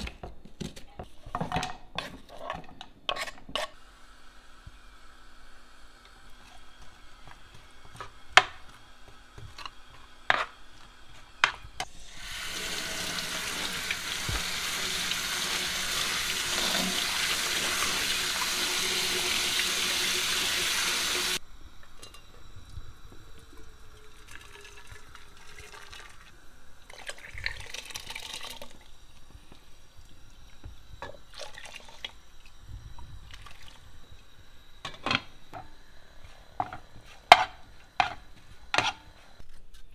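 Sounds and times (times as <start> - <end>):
tap water running into colander: 11.8 - 29.4, 30.0 - 32.5, 33.3 - 33.8.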